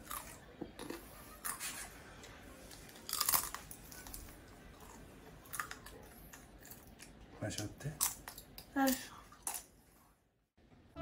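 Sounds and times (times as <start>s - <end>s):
crisp chips crunching: 2.9s - 4.2s.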